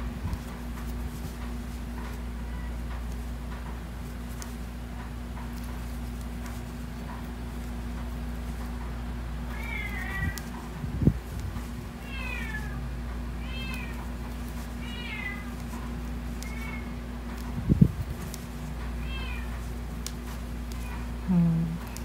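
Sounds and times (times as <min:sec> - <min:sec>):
steady low hum: 0:00.0 - 0:22.0
cat mewing: 0:09.5 - 0:10.4.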